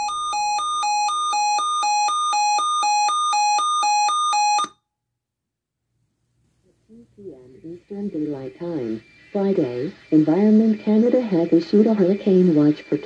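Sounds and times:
two-pitch alarm beeping: 0.0 - 4.8.

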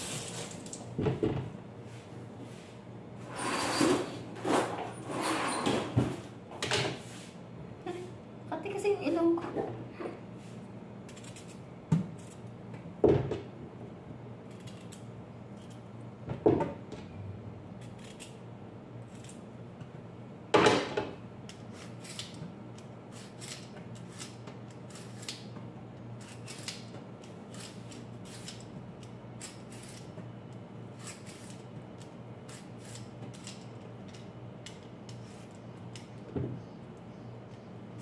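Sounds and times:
knife scraping carrot skin: 11.1 - 11.6, 14.5 - 15.8, 17.8 - 18.4, 19.0 - 19.4, 21.5 - 25.5, 26.2 - 30.2, 30.9 - 34.2.

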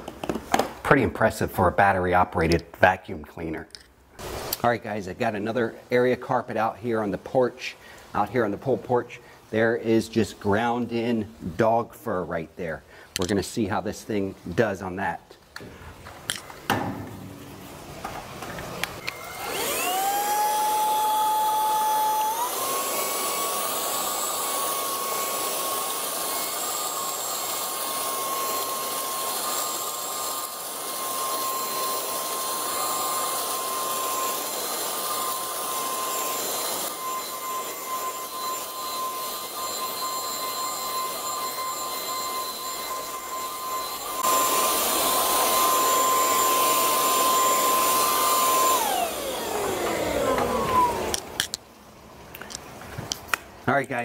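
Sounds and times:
vacuum cleaner motor whine: 17.2 - 51.5.

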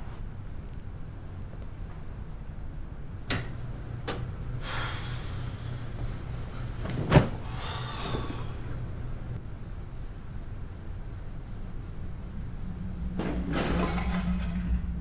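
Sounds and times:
low steady hum: 0.0 - 15.0
person landing on bed: 6.8 - 8.4.

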